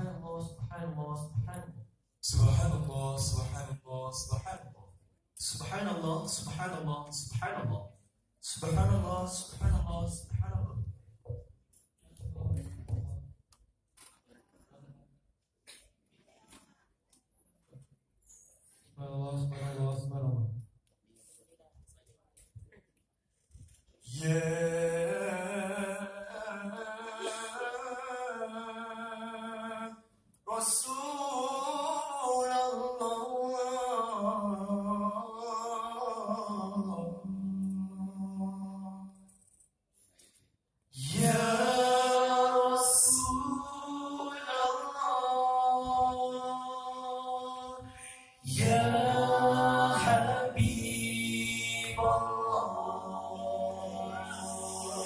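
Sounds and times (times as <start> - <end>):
male voices singing in harmony: 24.1 - 39.2, 41.0 - 55.0.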